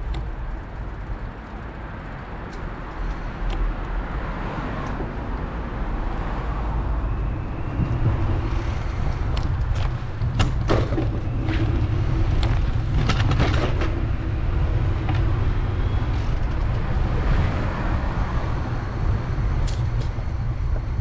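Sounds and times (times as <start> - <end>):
low traffic rumble: 0.0 - 21.0
sharp clicks and rattles: 8.4 - 17.0.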